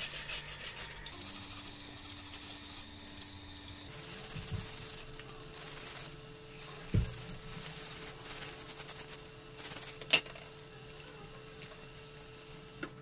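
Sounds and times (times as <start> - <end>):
wire brush scratching metal: 0.0 - 2.9, 3.9 - 10.4
tap water running: 1.0 - 13.0.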